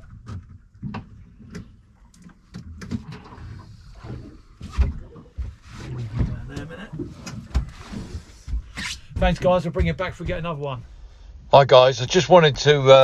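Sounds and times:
knocks and clatters on boat deck: 0.0s - 10.8s.

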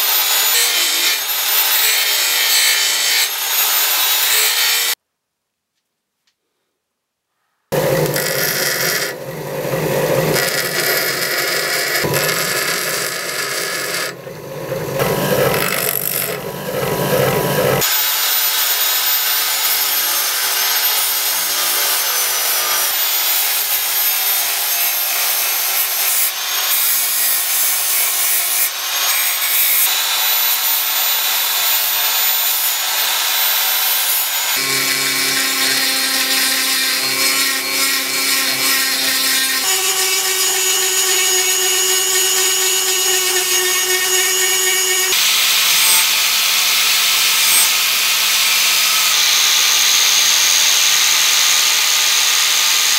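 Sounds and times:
bench grinder grinding metal: 0.0s - 5.0s, 7.7s - 52.9s
rotary tool motor hum: 7.8s - 17.9s, 32.1s - 45.2s
belt sander hissing and whining: 7.8s - 52.9s.

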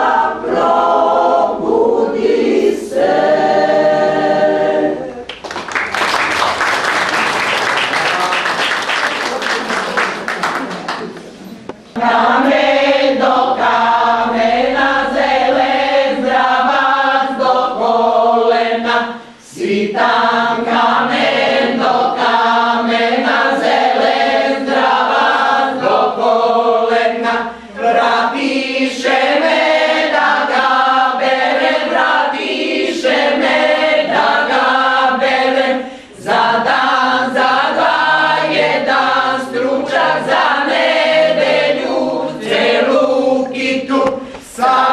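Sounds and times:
women's choir singing: 0.0s - 5.3s, 12.0s - 44.9s.

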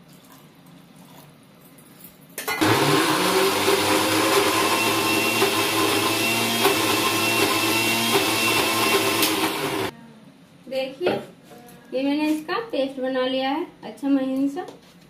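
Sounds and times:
mixer grinder motor running: 2.5s - 9.9s.

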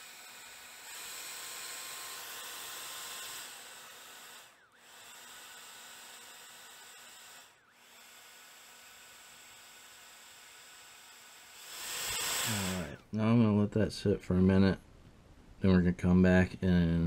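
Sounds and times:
hair dryer blowing: 0.0s - 13.0s.

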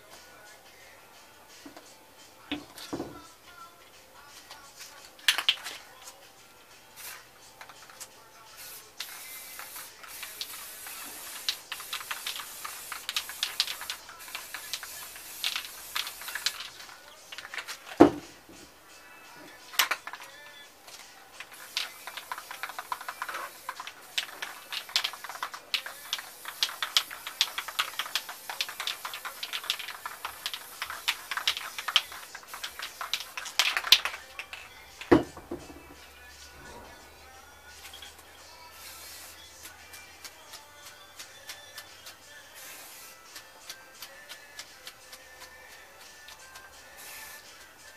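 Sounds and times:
spray paint hissing: 4.8s - 5.9s, 6.8s - 18.7s, 19.4s - 36.8s, 37.7s - 47.9s
paper clicking and rustling: 21.6s - 34.6s.

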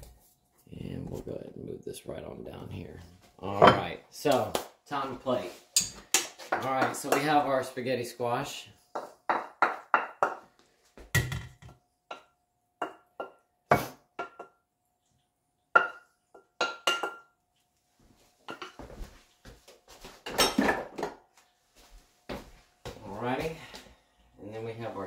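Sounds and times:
spatula knocking on metal skillet: 9.0s - 10.4s.

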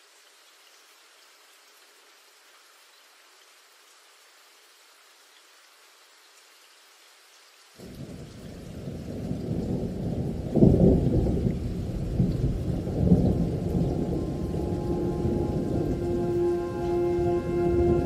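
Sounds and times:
rain: 0.0s - 18.0s
rolling thunder: 7.8s - 18.0s
thunder crack: 9.6s - 16.5s.

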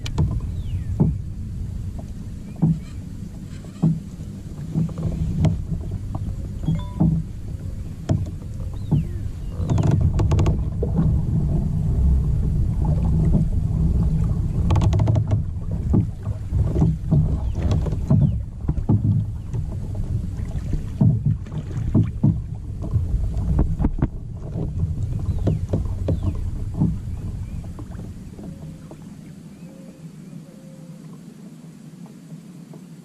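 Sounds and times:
knocks on boat: 0.0s - 29.1s
steady low rumble: 0.0s - 29.2s
water slapping against kayak hull: 0.0s - 29.4s.

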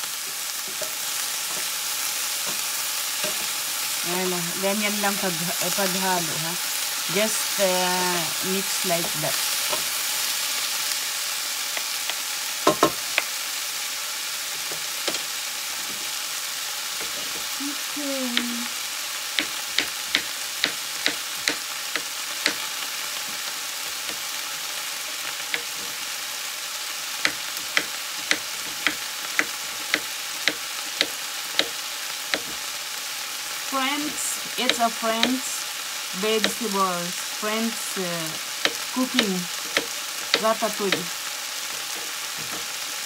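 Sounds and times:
vegetables sizzling in a frying pan: 0.0s - 43.0s
wooden spatula knocking on pan: 12.6s - 13.3s, 19.4s - 22.6s, 27.2s - 32.6s, 39.7s - 41.0s.

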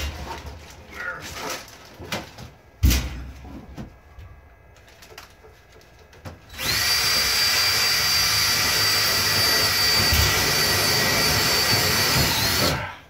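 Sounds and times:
power drill whining: 6.5s - 12.8s.

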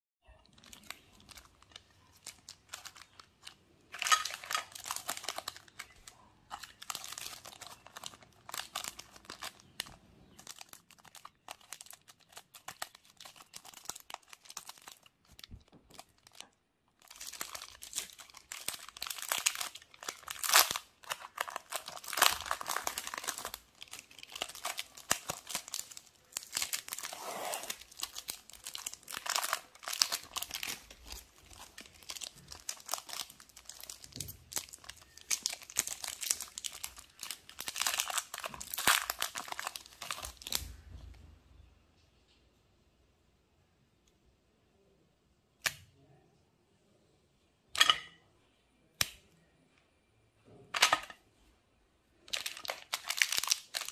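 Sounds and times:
foil wrappers crinkling and tearing: 0.4s - 40.6s, 52.3s - 53.9s.

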